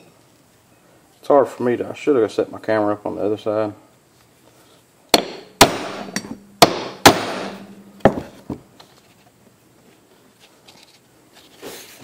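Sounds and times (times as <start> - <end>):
hammer striking metal punch: 5.2 - 8.4
faint metallic ring: 6.0 - 6.6, 7.5 - 8.4.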